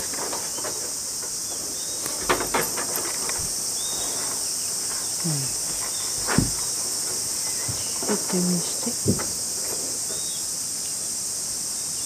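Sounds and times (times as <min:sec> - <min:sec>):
insect chorus: 0:00.0 - 0:12.0
knocks on wooden deck: 0:05.6 - 0:09.5.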